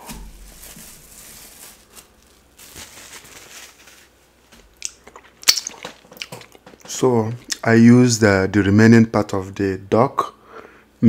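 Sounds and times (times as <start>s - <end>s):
plastic wrap crinkling: 0.0s - 7.4s.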